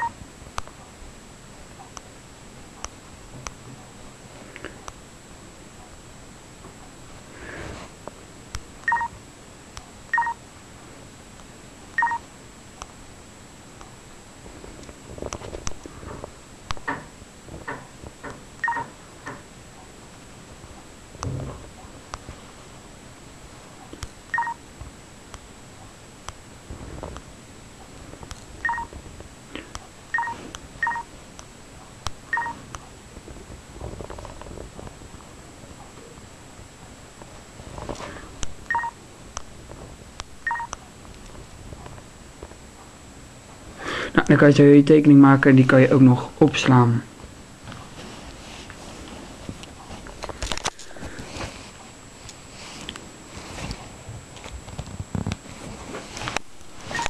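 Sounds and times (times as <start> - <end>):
short key-tone beeps: 8.9 - 9.1, 10.1 - 10.4, 12.0 - 12.2, 24.3 - 24.6, 28.6 - 28.9, 30.1 - 31.1, 32.3 - 32.6, 38.7 - 39.0, 40.4 - 40.7
short electronic beeps: 12.0 - 12.2, 30.1 - 31.1, 40.4 - 40.7.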